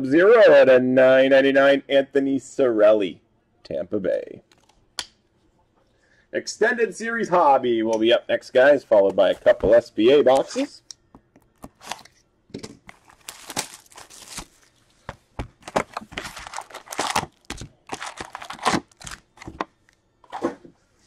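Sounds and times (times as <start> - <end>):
foil packs tearing and crinkling: 11.6 - 12.1, 12.8 - 14.8, 15.6 - 19.6.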